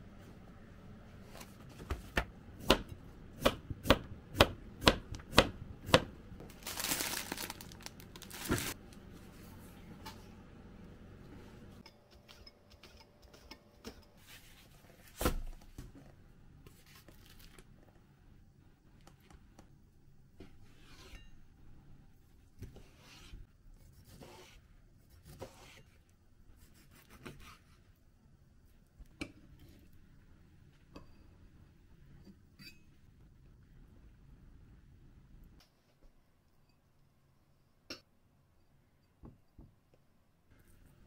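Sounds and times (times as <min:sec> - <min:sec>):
crinkling tearing rustle: 0:06.4 - 0:08.8.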